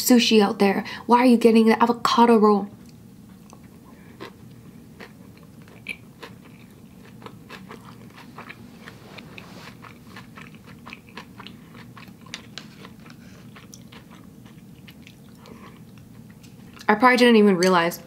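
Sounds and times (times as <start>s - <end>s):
close-up chewing: 2.8s - 16.9s.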